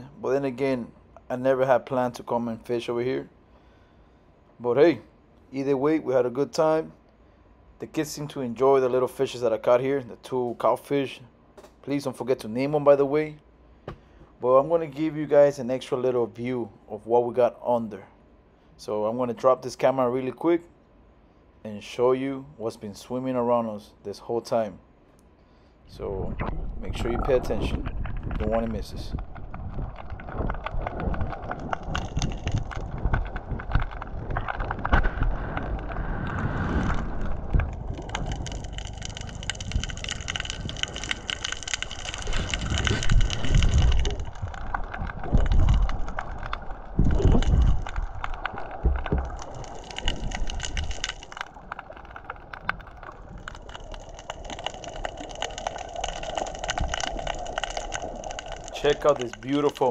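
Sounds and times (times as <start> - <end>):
underwater crackle of clicks: 26.3 - 59.9
heavy low underwater thumps: 42.5 - 51.0.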